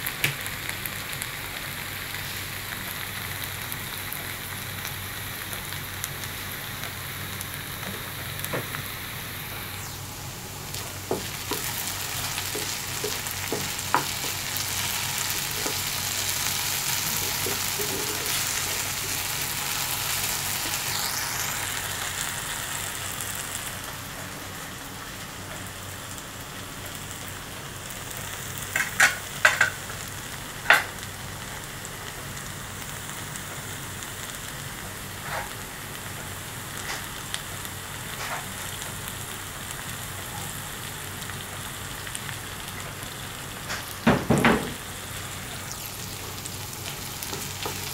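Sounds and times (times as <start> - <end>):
potatoes sizzling in oil: 0.0 - 47.9.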